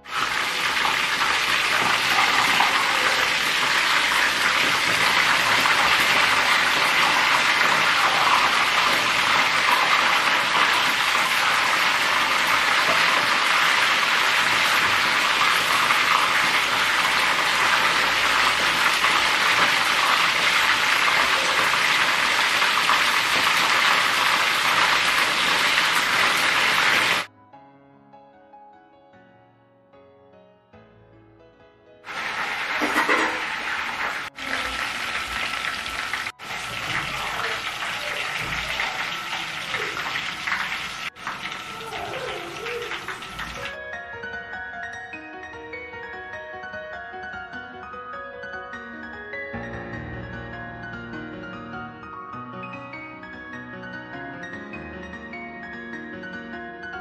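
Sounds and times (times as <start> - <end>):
hot oil sizzling: 0.0 - 27.3, 32.1 - 43.8.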